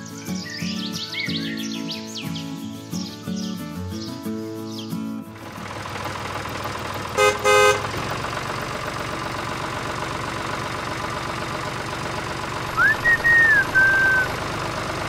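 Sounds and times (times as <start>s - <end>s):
tractor engine running: 5.2s - 15.0s
horn toots: 7.2s - 8.0s
squeaky rising and falling call: 12.8s - 14.4s.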